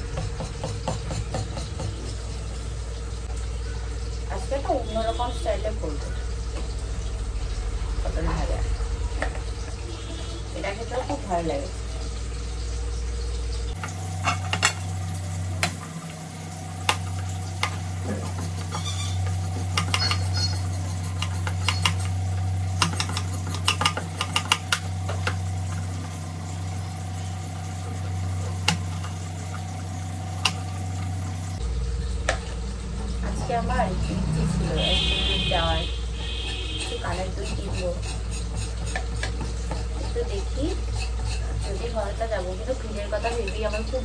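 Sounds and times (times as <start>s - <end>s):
knife chopping vegetables: 0.0s - 2.1s, 16.8s - 25.5s, 36.2s - 42.3s.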